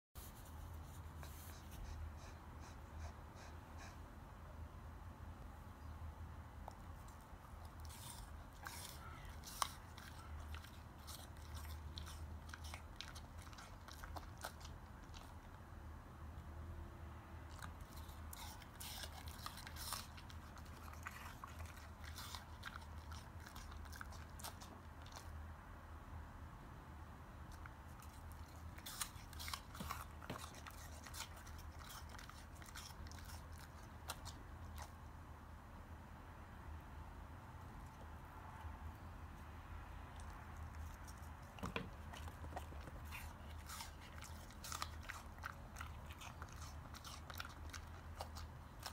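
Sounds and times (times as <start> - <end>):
dog chewing apple crunches: 6.6 - 15.6, 17.5 - 25.3, 27.5 - 35.0, 40.0 - 48.9.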